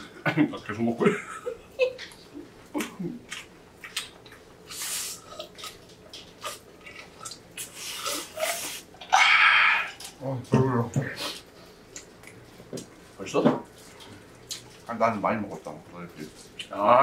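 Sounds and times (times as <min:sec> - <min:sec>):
wet chewing and smacking: 0:02.0 - 0:04.6, 0:05.2 - 0:08.2, 0:13.7 - 0:14.9.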